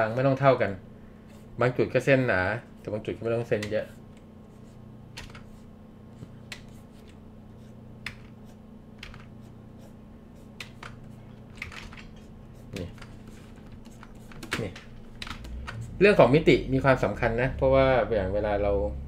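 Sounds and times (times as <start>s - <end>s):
low electrical hum: 0.0s - 19.0s
faint clicks and taps at a desk: 6.2s - 7.2s, 8.0s - 8.4s, 9.0s - 9.3s, 10.6s - 15.8s.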